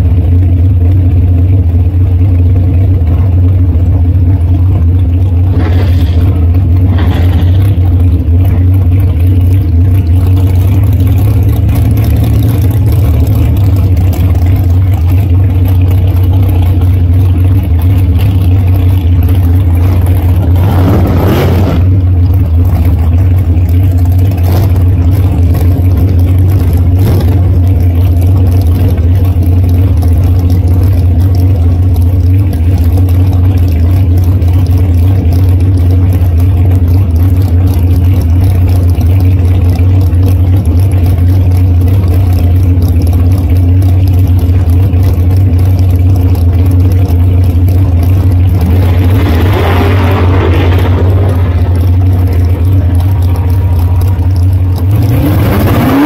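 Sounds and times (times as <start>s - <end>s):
loud dragster engine idling: 0.0s - 56.0s.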